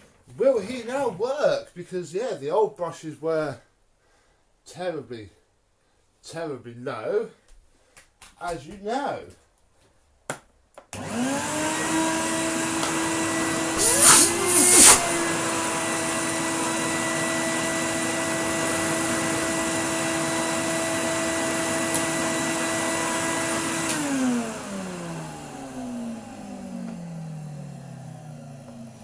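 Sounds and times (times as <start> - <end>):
vacuum cleaner motor running: 11.0 - 29.0
loud rushes of air: 13.8 - 15.2.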